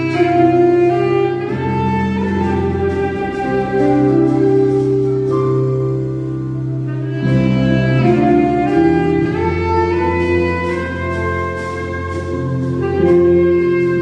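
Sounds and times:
backing track low chords: 0.0 - 14.0
saxophone melody: 0.0 - 14.0.

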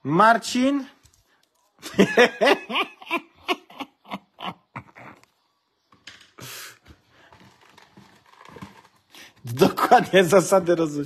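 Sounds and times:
man laughing: 1.8 - 5.3.

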